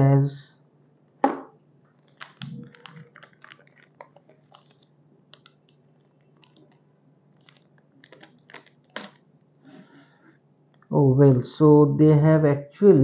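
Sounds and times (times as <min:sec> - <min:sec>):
plastic sleeve crinkling: 0:01.9 - 0:09.6.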